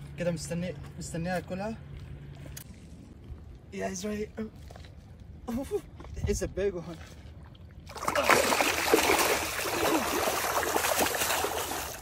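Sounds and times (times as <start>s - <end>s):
eel splashing in water: 7.4s - 12.0s.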